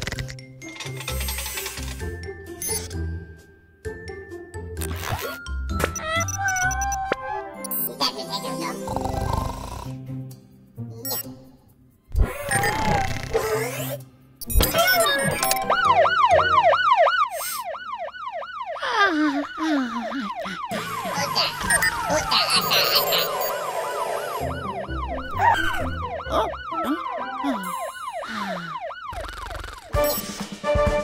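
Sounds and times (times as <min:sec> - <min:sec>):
cartoon music: 0:04.8 - 0:08.9, 0:12.3 - 0:17.0, 0:18.8 - 0:31.0
cartoon sound effects: 0:04.9 - 0:08.8, 0:12.2 - 0:16.6, 0:18.8 - 0:30.2
cartoon fire truck siren yelping: 0:06.0 - 0:07.4, 0:14.7 - 0:30.0.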